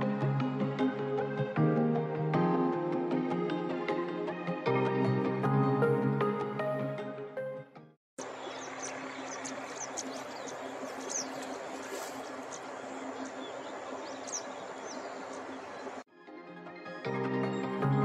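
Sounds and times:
outdoor ambience hiss: 8.2s - 16.0s.

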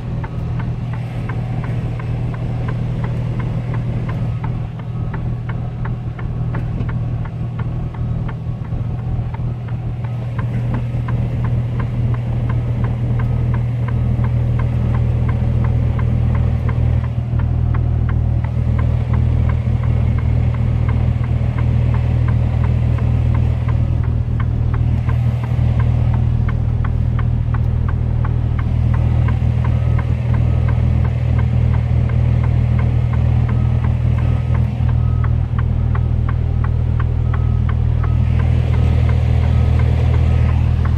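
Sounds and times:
diesel engine low hum: 0.0s - 40.9s
light ticking: 0.0s - 40.9s.

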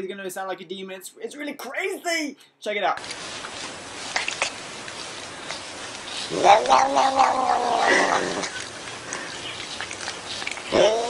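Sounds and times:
cat yowling meow: 6.3s - 8.5s, 10.7s - 11.0s.

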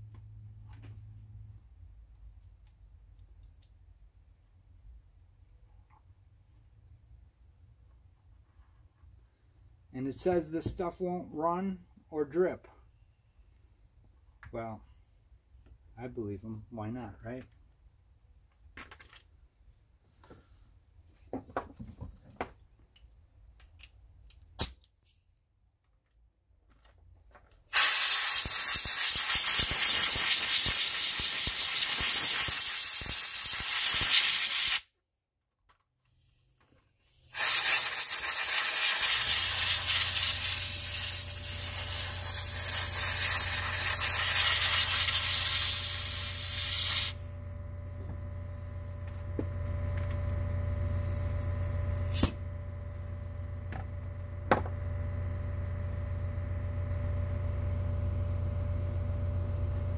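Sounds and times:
aerosol spray can spraying: 27.7s - 34.9s, 37.3s - 47.2s.

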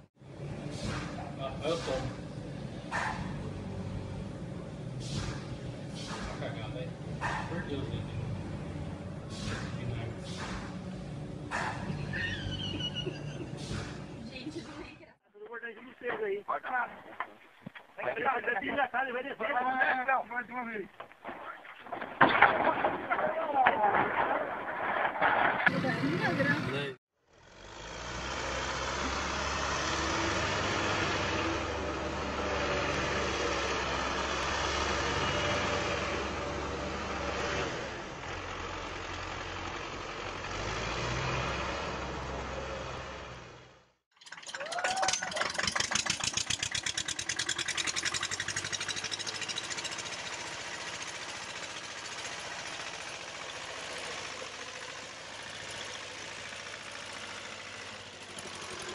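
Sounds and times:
tractor engine running: 0.0s - 15.6s, 25.7s - 58.9s
tractor engine knocking: 44.2s - 58.9s.

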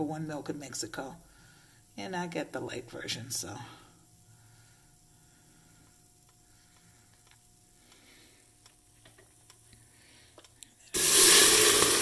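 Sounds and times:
milk pouring into metal pot: 10.9s - 12.0s.

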